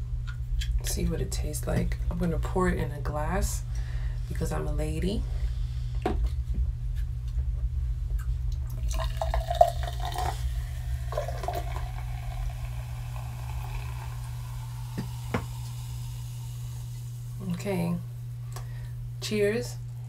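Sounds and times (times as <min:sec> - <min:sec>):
steady low hum: 0:00.0 - 0:20.0
juice pouring into a glass: 0:08.7 - 0:17.3
fizzing in a glass: 0:08.8 - 0:17.1.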